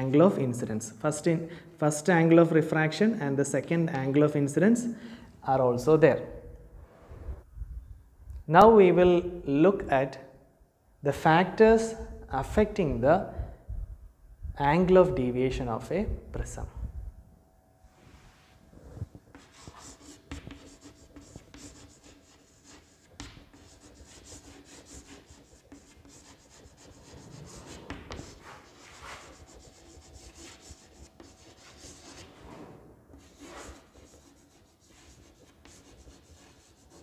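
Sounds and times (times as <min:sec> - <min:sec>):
chalk scratching on chalkboard: 0:19.3 - 0:37.0.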